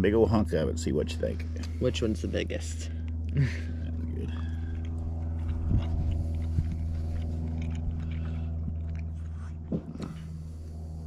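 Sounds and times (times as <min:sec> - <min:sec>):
low machine hum: 0:00.0 - 0:11.0
person chewing: 0:02.9 - 0:11.0.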